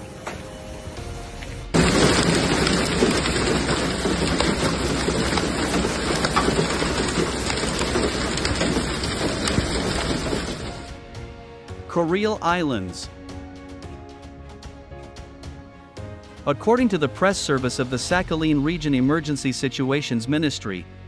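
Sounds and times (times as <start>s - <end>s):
rain and hail drumming on car: 1.8s - 11.0s.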